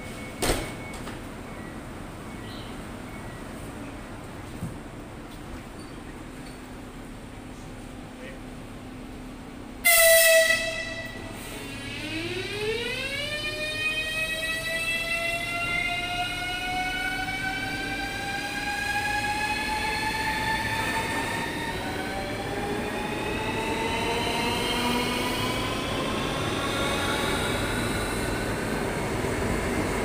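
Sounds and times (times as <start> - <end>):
electric train traction whine: 10.6 - 30.0.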